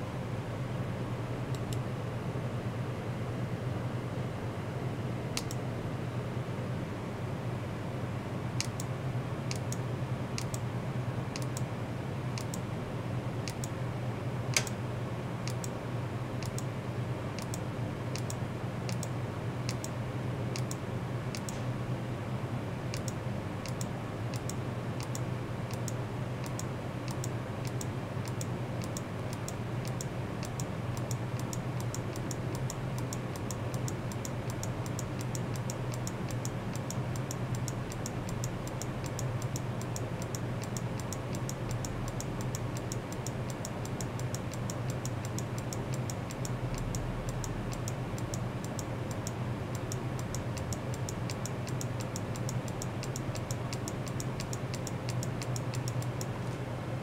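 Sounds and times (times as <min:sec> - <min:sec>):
steady low hum: 0:00.0 - 0:57.0
fast even ticking: 0:27.7 - 0:56.2.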